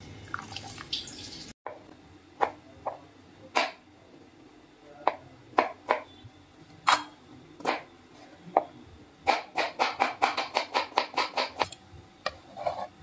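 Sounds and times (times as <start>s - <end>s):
knife chopping on plastic board: 9.3s - 12.4s.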